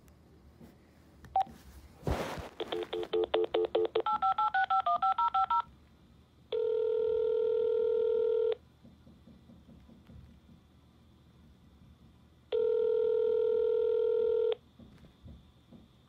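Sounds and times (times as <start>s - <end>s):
telephone line noise: 2.6s - 5.7s, 6.5s - 8.6s, 12.5s - 14.6s
telephone ringback tone: 2.6s - 5.7s, 6.5s - 8.6s, 12.5s - 14.6s
phone key beep: 2.7s - 5.6s.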